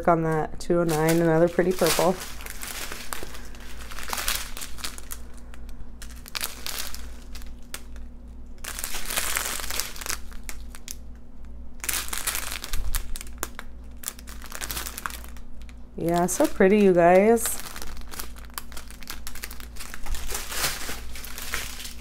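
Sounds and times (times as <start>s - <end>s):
plastic bags crinkling: 0.0s - 11.1s, 11.8s - 22.0s.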